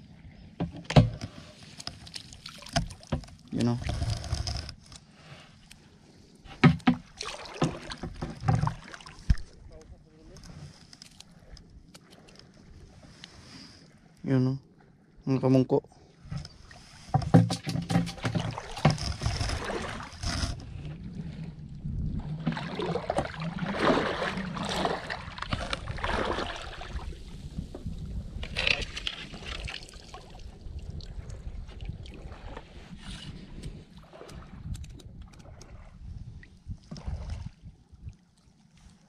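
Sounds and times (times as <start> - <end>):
boots wading through water: 1.5 - 3.1, 6.6 - 9.6, 16.6 - 20.5, 22.2 - 27.2.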